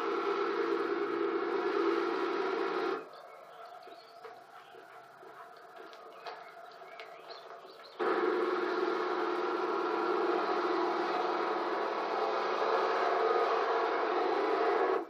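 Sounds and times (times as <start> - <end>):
tractor engine running: 0.0 - 15.0
faint bird chirps: 3.0 - 8.0.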